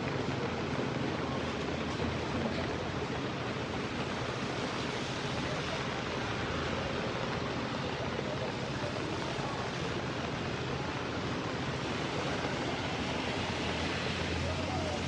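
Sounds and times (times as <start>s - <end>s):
floodwater rushing: 4.2s - 15.0s.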